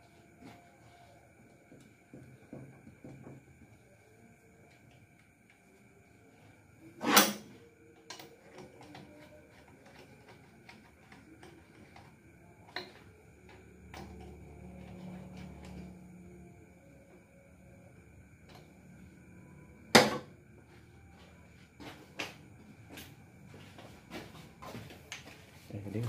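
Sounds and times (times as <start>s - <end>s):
faint low hum: 0.0s - 26.0s.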